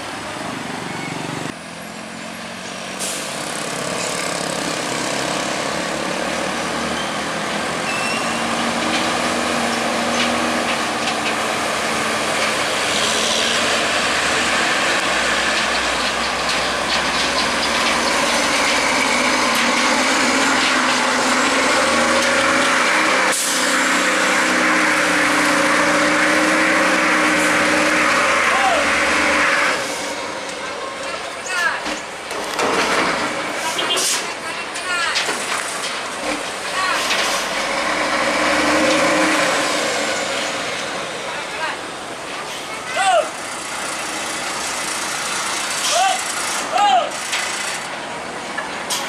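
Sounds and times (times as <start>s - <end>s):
diesel truck engines labouring: 0.0s - 49.0s.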